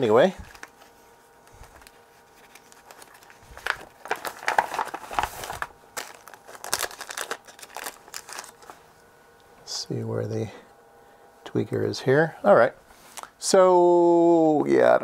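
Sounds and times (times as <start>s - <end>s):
rustling while rummaging by hand: 0.0s - 9.0s.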